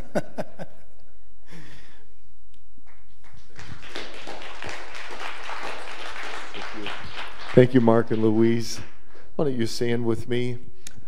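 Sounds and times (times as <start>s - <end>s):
congregation applauding: 2.9s - 9.3s.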